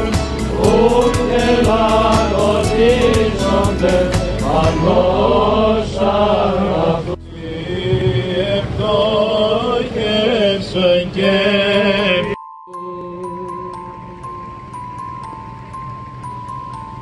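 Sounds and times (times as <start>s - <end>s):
voices singing a chant: 0.0s - 14.1s.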